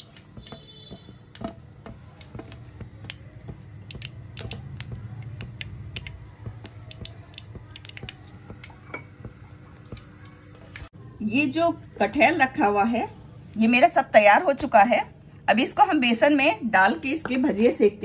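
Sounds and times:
hot oil popping and crackling: 0.0 - 10.9.

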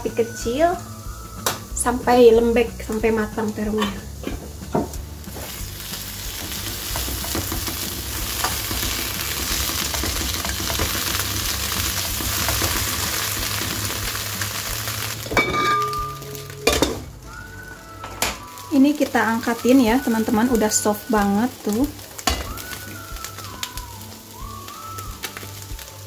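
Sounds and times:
food sizzling in oil: 0.0 - 26.0
glass lid clinking: 15.3 - 17.0.

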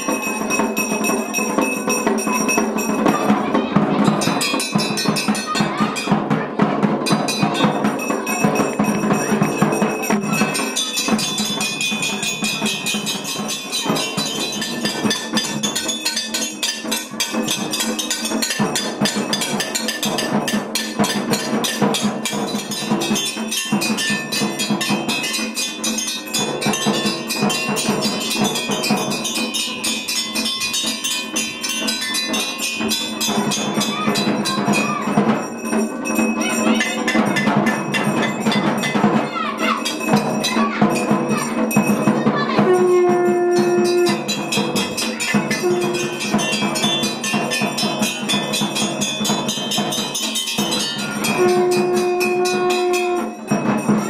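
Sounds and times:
bells clanging rapidly: 0.0 - 54.0
drum-like percussion: 0.0 - 54.0.

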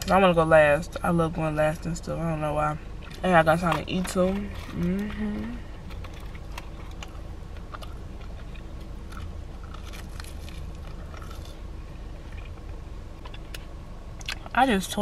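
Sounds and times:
low hum inside a car: 0.0 - 15.0
biting and chewing crispy food: 2.9 - 14.6.

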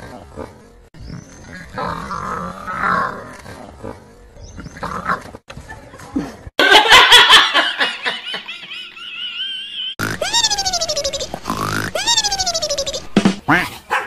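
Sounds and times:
women laughing and shrieking: 6.6 - 11.3.

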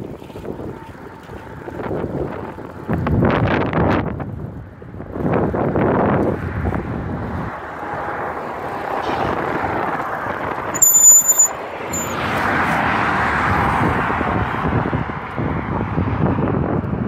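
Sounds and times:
wind rumble on microphone: 0.0 - 10.7, 12.2 - 17.0
road traffic: 6.4 - 16.0
high-pitched squeal: 10.8 - 12.2.

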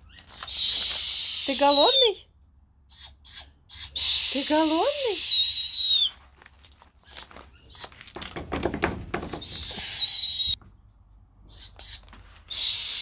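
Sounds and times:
owl chick screeching: 0.0 - 2.2, 2.9 - 6.2, 9.3 - 10.6, 11.5 - 13.0
knocking and rustling: 6.6 - 9.8.

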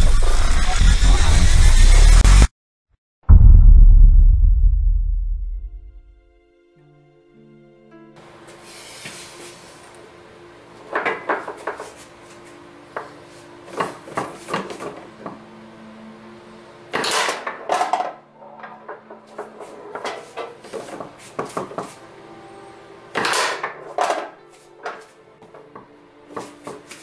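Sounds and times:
foosball ball knocks and rod clacks: 17.0 - 22.0, 23.2 - 25.6.

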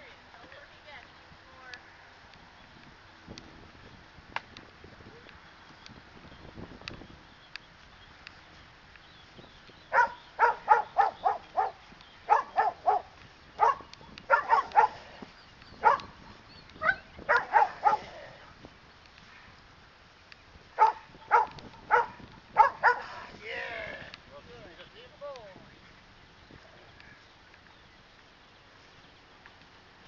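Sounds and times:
dog barking: 9.9 - 15.0, 15.8 - 16.2, 16.8 - 18.1, 20.8 - 23.1.

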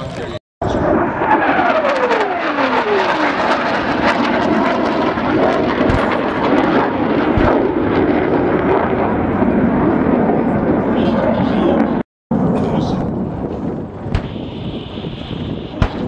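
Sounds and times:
jet aircraft flying past: 0.0 - 16.0
dull explosion booms: 5.3 - 10.4, 11.8 - 16.0.

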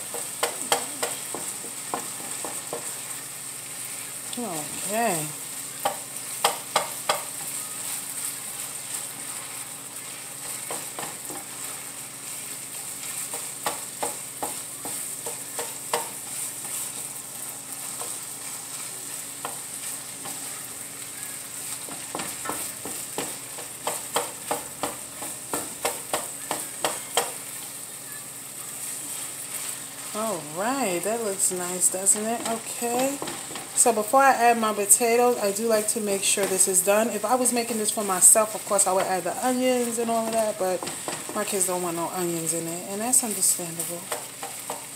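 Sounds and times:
sausage sizzling in frying pan: 0.0 - 44.9
wooden spatula scraping a pan: 5.8 - 20.8, 28.7 - 34.2, 35.2 - 42.5.

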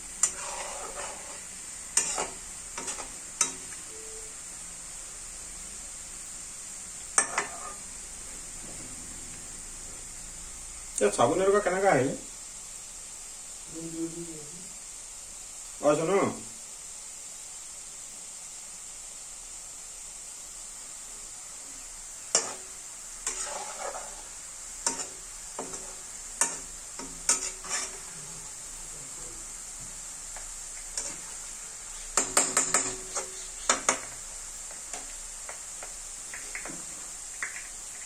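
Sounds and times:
potato sizzling in hot oil: 0.0 - 38.0
metal ladle scraping a wok: 0.2 - 3.6, 7.2 - 7.9, 22.4 - 28.2, 30.9 - 31.4.

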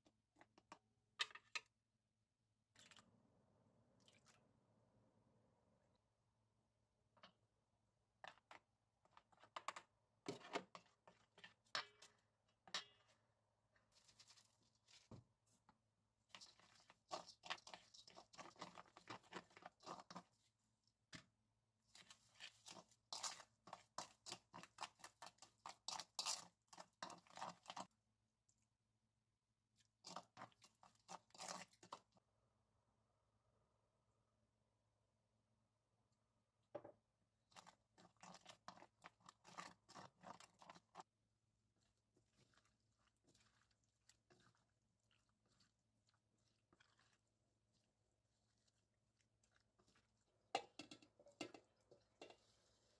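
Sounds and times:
spoon stirring paste in metal bowl: 8.2 - 28.0, 29.8 - 32.2, 36.8 - 52.9.

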